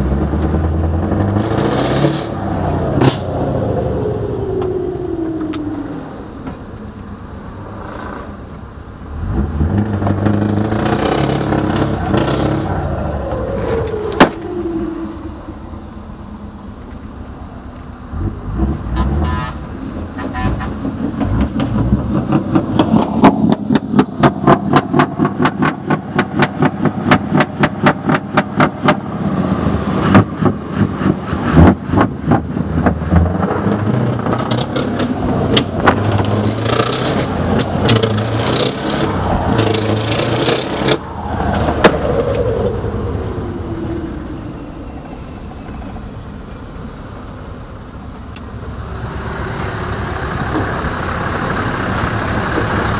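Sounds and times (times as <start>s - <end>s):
truck engine revving hard: 0.0s - 6.2s, 9.1s - 15.2s, 18.1s - 44.5s.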